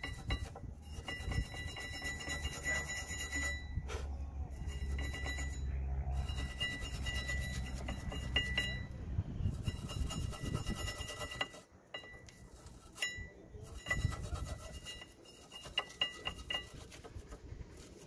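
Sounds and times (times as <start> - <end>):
metal tools scraping metal: 0.0 - 18.0
low rumble: 3.6 - 10.2.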